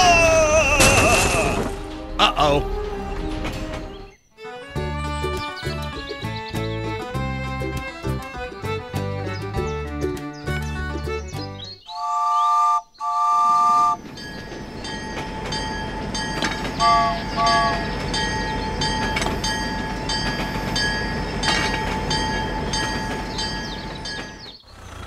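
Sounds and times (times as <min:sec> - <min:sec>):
toy train electronic whistle toots: 0:11.9 - 0:14.1, 0:16.8 - 0:18.0.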